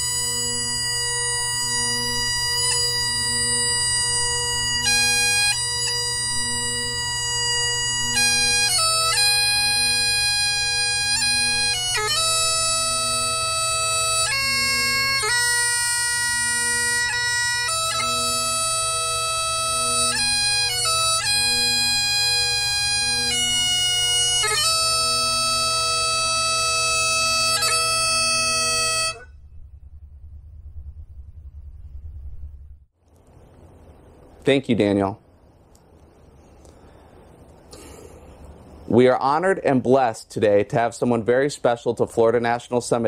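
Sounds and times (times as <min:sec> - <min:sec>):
bagpipes playing slow melody: 0:00.0 - 0:29.3
faint low rumble: 0:28.9 - 0:39.7.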